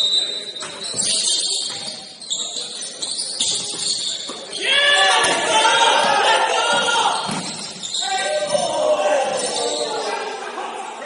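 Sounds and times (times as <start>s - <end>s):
sneakers squeaking on gym floor: 0.0s - 10.2s
players shouting: 4.5s - 11.0s.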